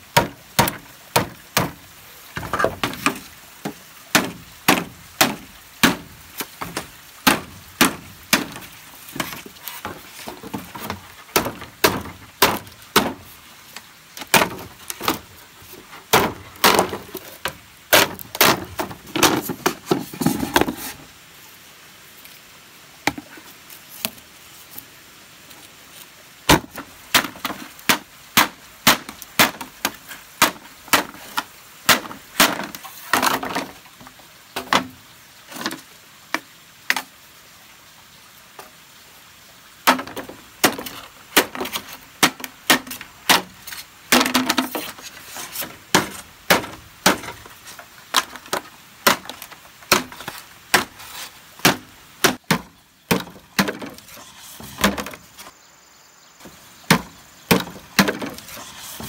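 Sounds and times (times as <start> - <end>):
bamboo being chopped: 0.2 - 1.8, 2.4 - 15.3, 16.1 - 20.7, 26.5 - 33.7, 34.6 - 35.0, 39.8 - 47.5, 48.1 - 55.5, 56.9 - 59.0.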